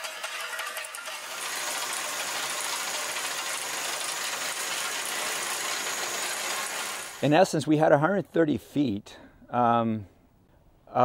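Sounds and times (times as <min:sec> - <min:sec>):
skid steer engine running: 0:00.0 - 0:07.2.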